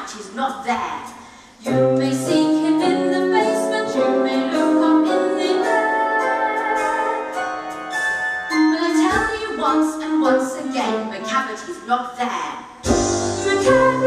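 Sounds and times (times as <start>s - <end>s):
girl singing into a microphone: 1.6s - 7.2s, 8.7s - 12.3s
backing track: 1.6s - 11.6s, 12.8s - 14.0s.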